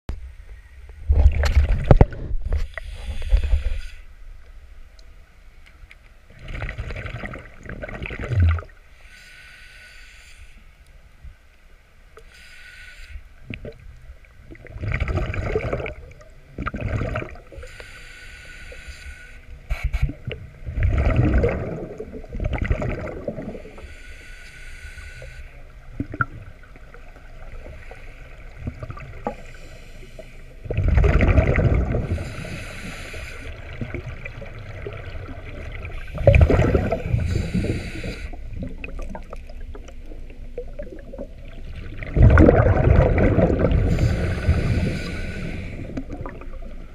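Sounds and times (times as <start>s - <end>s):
hissing inhale through regulator: 2.5s - 4.1s, 8.9s - 10.8s, 12.2s - 13.4s, 17.5s - 20.3s, 23.4s - 25.7s, 26.9s - 30.7s, 31.9s - 33.8s, 35.9s - 38.6s, 43.7s - 46.6s
bubbling rush of exhaled bubbles: 6.4s - 8.7s, 14.5s - 17.5s, 20.7s - 23.6s, 30.7s - 32.2s, 33.6s - 37.7s, 38.5s - 44.9s, 45.8s - 46.9s.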